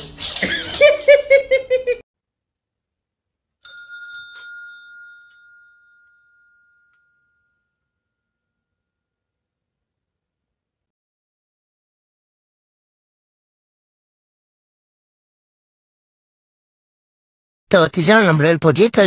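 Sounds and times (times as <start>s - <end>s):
bell ding: 3.6s - 9.2s.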